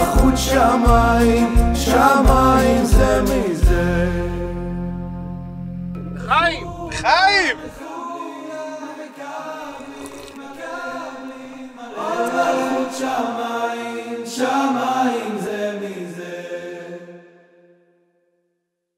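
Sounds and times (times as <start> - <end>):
musical accompaniment: 4.4 - 7.7
voices singing held notes: 6.0 - 17.2.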